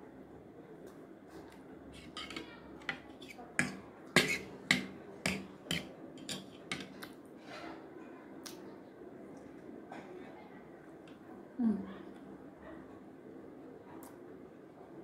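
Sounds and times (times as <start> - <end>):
fork picking at noodles: 1.9 - 7.2.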